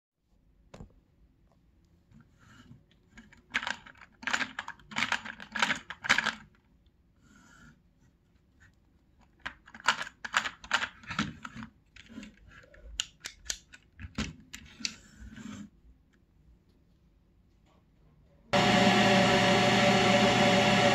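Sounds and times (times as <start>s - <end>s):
toy engine parts clattering: 3.1s - 6.6s, 9.2s - 14.9s.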